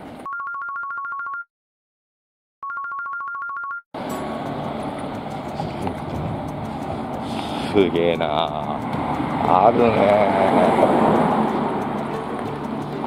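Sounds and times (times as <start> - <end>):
electronic telephone ringtone trill: 0.3 - 1.5, 2.6 - 3.8
street background noise: 4.0 - 13.0.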